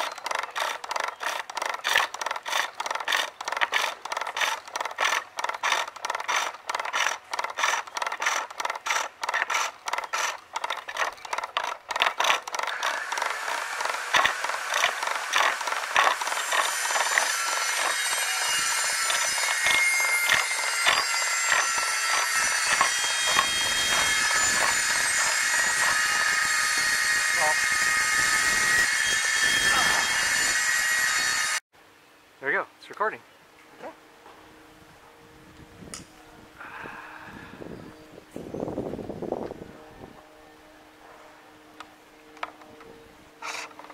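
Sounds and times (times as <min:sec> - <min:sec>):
chisel scraping wood on lathe: 0:00.0 - 0:27.0, 0:43.4 - 0:43.9.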